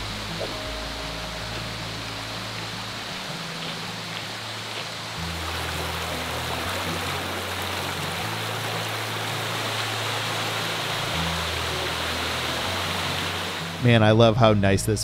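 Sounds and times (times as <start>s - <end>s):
low hum stepping pitches: 0.0s - 9.0s
brook flowing over stones: 0.0s - 13.8s.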